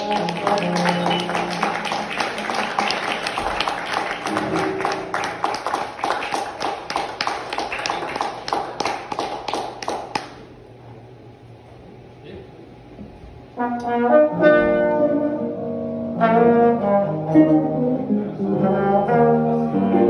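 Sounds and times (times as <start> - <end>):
audience clapping: 0.0 - 10.6.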